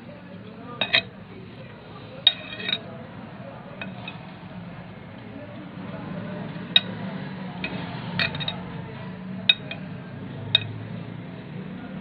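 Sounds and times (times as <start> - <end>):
spatula clinking on glass bowl: 2.2 - 2.8.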